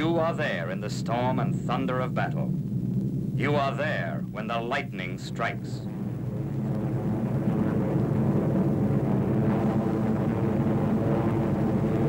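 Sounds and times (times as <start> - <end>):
piston aircraft engines droning: 0.0 - 12.0.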